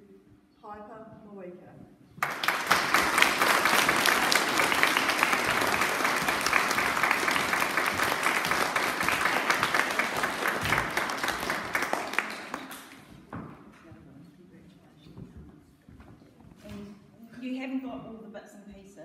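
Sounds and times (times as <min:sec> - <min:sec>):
audience applauding: 0:02.2 - 0:13.3.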